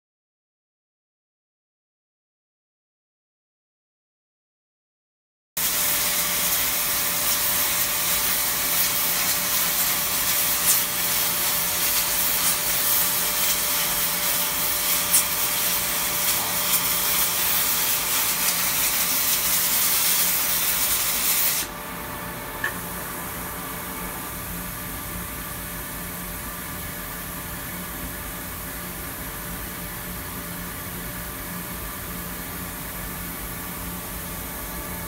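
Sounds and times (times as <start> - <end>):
compressed air gun hissing: 5.6 - 21.7
steady machine hum: 5.6 - 35.0.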